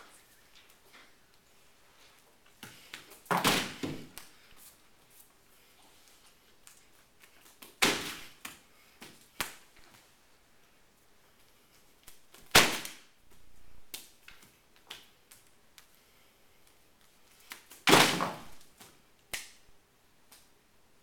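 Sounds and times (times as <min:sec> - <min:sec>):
sharp knocks and slaps: 0:02.6 - 0:04.2.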